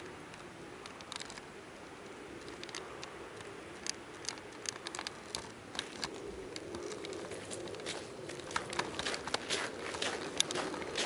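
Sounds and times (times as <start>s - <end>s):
faint steady hum: 0.0s - 11.0s
footsteps crunching on snow: 5.8s - 11.0s.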